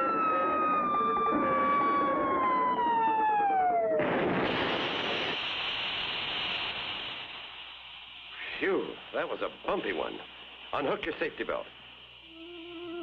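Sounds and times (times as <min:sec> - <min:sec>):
cartoon crash: 0:03.9 - 0:05.4
falling whistle: 0:12.3 - 0:13.0.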